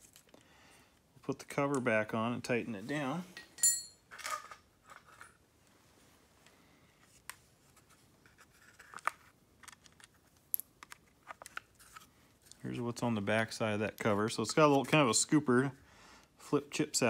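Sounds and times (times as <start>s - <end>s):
metallic ting: 3.4s - 4.0s.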